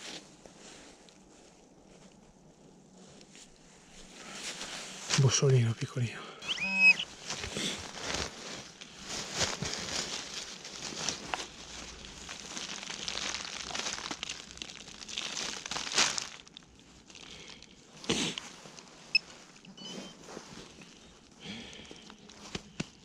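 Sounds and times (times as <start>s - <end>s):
soil and leaves crunching: 4.2s - 5.7s, 7.0s - 23.0s.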